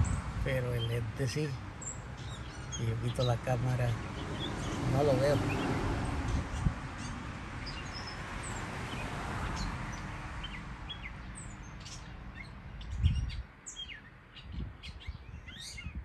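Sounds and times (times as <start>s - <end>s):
mockingbird singing: 0.0s - 5.7s.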